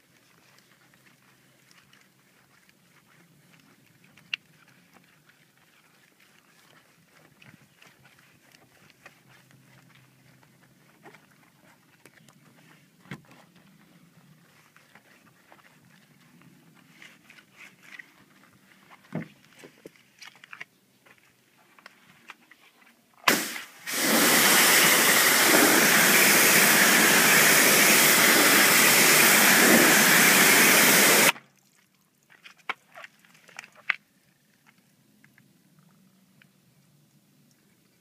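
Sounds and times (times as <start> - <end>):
pressure washer spraying: 23.3 - 31.4.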